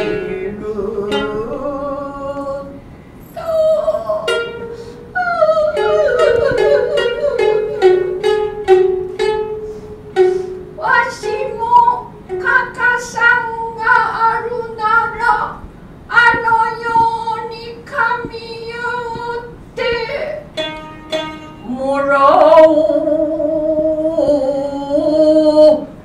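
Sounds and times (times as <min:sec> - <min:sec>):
shamisen plucked notes: 0:03.4 - 0:15.2, 0:17.9 - 0:23.7.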